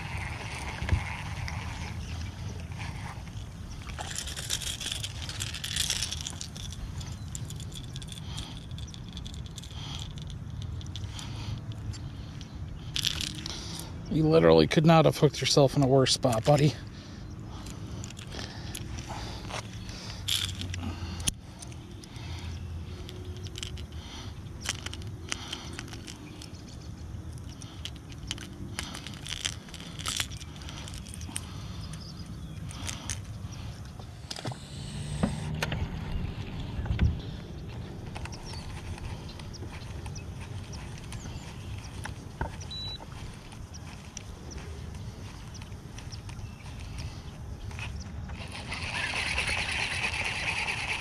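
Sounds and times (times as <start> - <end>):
steady low hum: 0.0 - 51.0
fishing lure rattling clicks: 3.9 - 13.8, 20.2 - 22.1, 23.0 - 24.0, 24.6 - 33.3.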